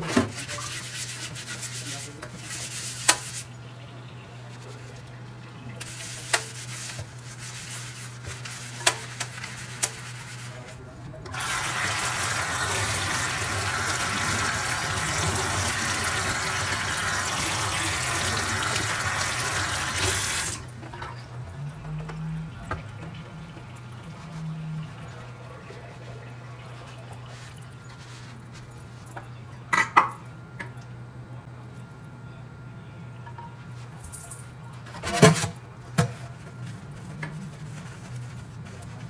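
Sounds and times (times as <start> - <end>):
water running: 0.1 - 29.1.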